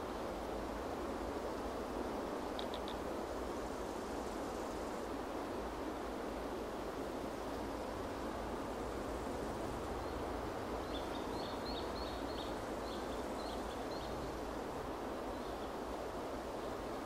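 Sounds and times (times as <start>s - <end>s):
rushing wind: 0.0s - 17.0s
bird chirping: 10.8s - 14.3s.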